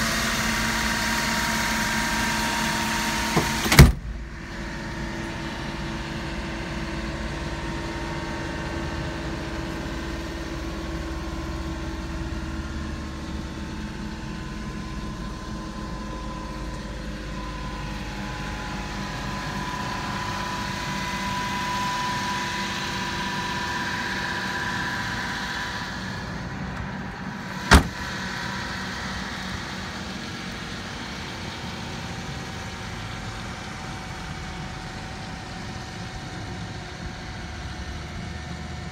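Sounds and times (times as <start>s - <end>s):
truck engine idling: 0.0s - 38.9s
sharp bang: 27.6s - 28.1s.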